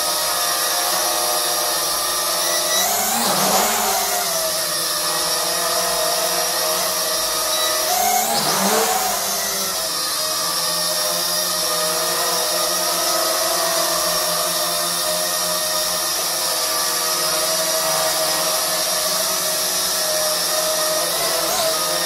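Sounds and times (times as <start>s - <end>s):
toy drone whirring: 0.0s - 22.0s.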